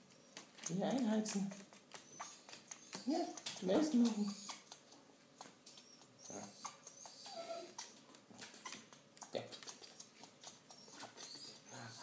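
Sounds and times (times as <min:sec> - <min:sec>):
parrot clicks and squeaks: 0:05.4 - 0:11.6.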